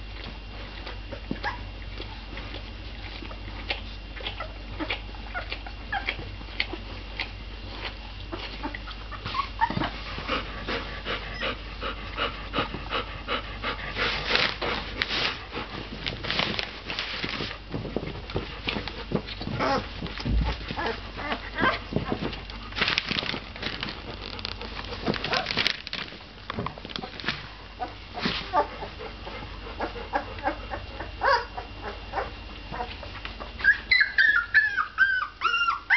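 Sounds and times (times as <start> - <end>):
puppies squeaking and whimpering: 4.2 - 10.1, 11.2 - 11.6, 19.3 - 20.0, 20.6 - 22.4, 27.8 - 29.0, 29.8 - 35.9.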